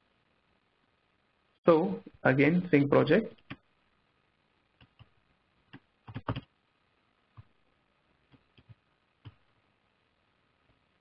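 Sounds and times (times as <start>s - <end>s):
keyboard keystrokes: 5.7s - 6.5s.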